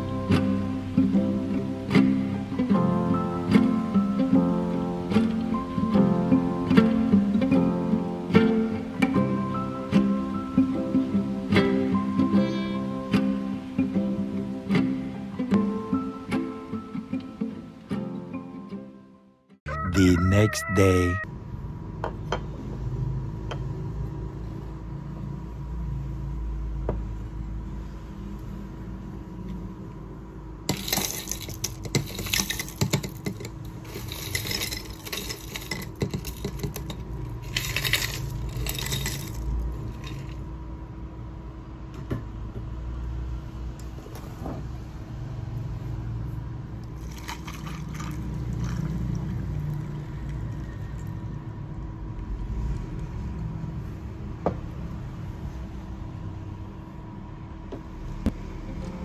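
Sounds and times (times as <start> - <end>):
ice clinking against glass: 30.7 - 40.4, 47.0 - 48.9
ice cubes clattering into glass: 30.7 - 40.4, 47.0 - 48.8
tea pouring over ice: 37.4 - 40.4, 47.0 - 51.2.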